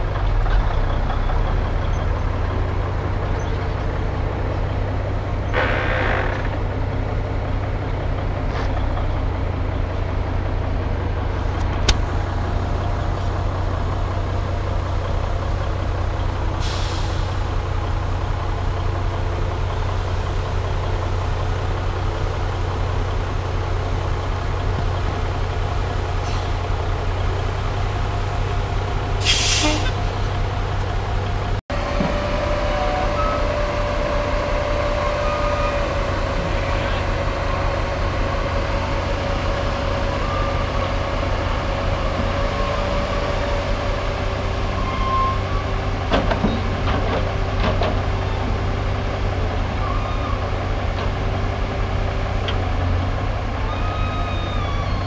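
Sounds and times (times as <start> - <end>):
heavy diesel engines running: 0.0 - 55.0
air brake hisses: 16.6 - 17.4, 29.2 - 30.0.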